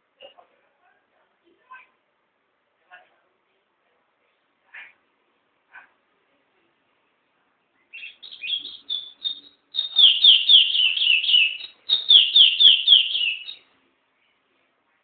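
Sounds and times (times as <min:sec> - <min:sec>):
songbird singing: 0:07.9 - 0:13.7.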